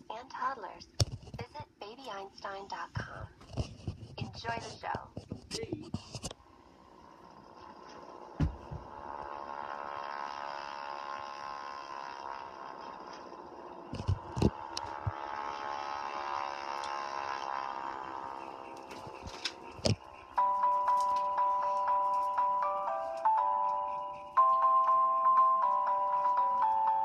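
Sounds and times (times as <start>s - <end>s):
distorted buzzing drone: 6.0s - 26.3s
chiming glockenspiel music: 20.0s - 27.0s.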